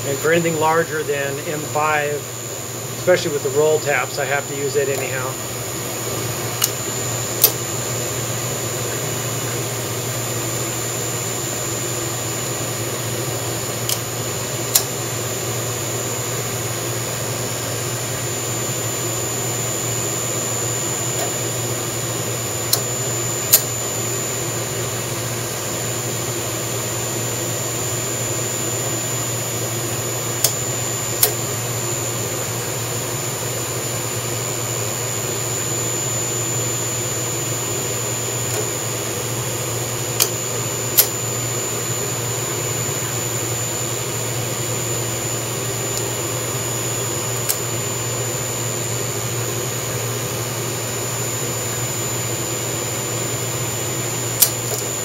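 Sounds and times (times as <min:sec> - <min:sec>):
mill spindle humming and whining: 0:00.0 - 0:55.0
sharp clicks: 0:07.4 - 0:07.6, 0:14.7 - 0:14.9, 0:22.7 - 0:22.9, 0:31.2 - 0:31.4, 0:40.2 - 0:40.4, 0:41.0 - 0:41.2.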